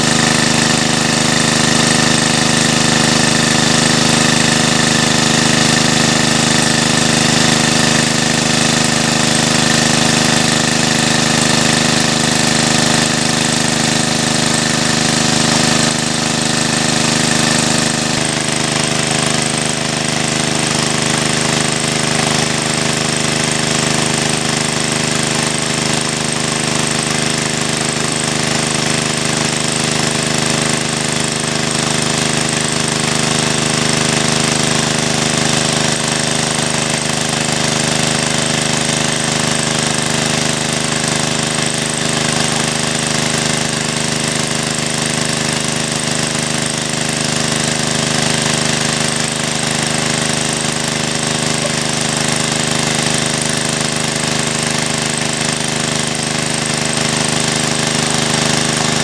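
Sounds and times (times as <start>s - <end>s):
pipe gushing water: 0.0s - 59.0s
water pump engine running: 0.0s - 59.0s.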